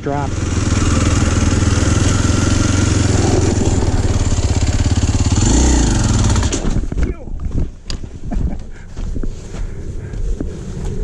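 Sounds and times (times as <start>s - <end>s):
motorcycle engine riding along: 0.0s - 7.0s.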